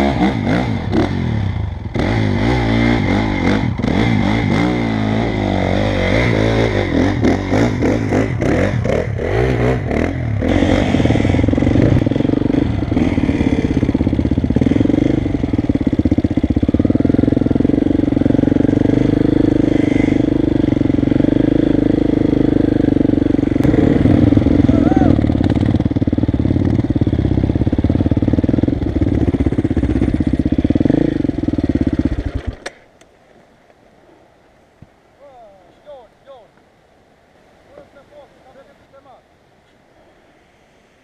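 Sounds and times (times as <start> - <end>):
dirt bike engine running: 0.0 - 32.7.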